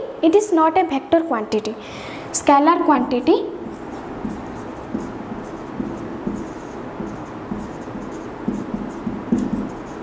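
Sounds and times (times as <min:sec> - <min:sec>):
marker squeaking on whiteboard: 0:03.6 - 0:10.0.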